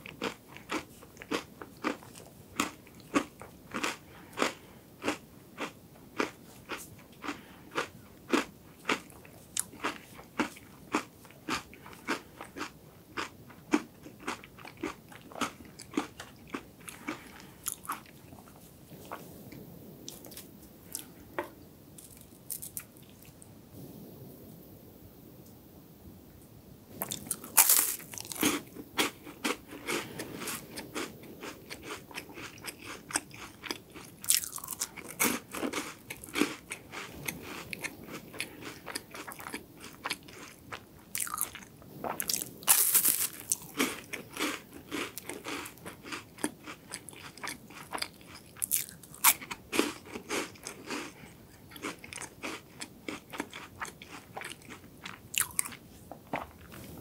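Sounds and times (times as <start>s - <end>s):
crunching of crisp wafers: 0.0s - 19.3s, 20.1s - 23.4s, 27.0s - 57.0s.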